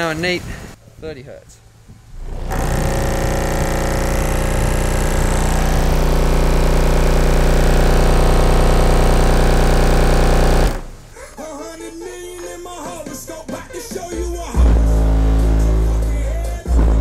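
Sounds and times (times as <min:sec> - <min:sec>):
deep bass test tone drone: 0:02.1 - 0:11.0, 0:14.6 - 0:17.0.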